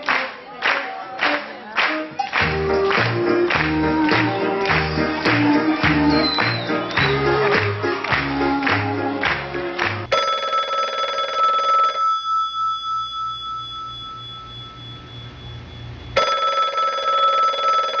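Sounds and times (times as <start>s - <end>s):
telephone ringing: 10.1s - 15.4s, 16.2s - 18.0s.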